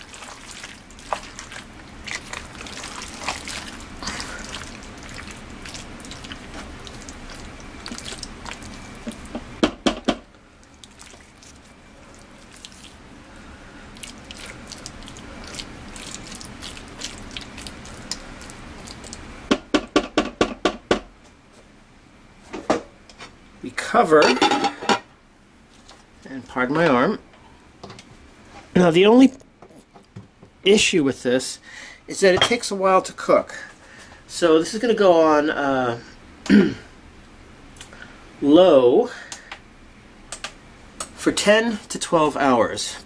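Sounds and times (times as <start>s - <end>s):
spoon stirring thick mixture: 0.0s - 9.4s, 10.8s - 13.0s, 14.0s - 19.2s.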